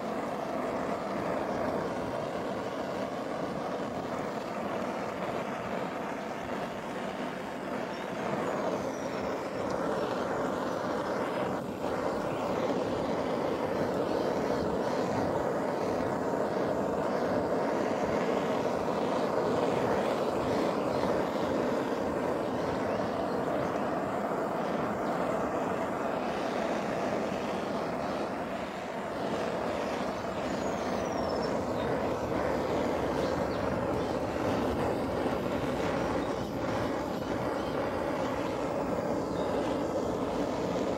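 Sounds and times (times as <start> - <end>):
blowtorch flame roaring: 0.0 - 40.9.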